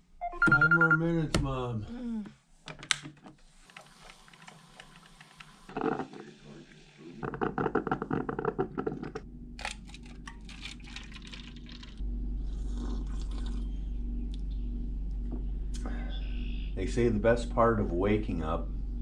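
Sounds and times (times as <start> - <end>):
coffee maker gurgling and sputtering: 3.8 - 9.3, 10.2 - 14.5
low hum: 5.7 - 19.0.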